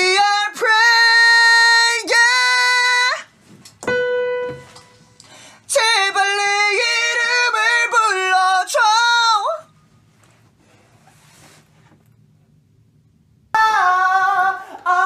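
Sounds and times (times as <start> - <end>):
piano note: 3.8 - 5.2.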